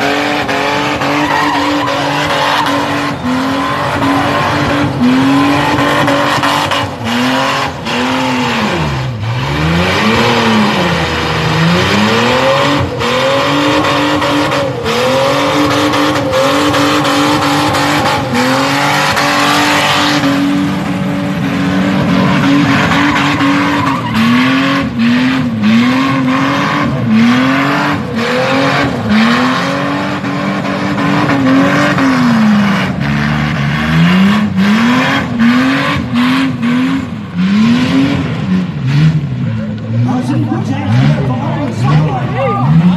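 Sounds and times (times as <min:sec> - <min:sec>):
car engine revving: 0:00.0 - 0:42.9
tyres screeching: 0:00.6 - 0:33.8.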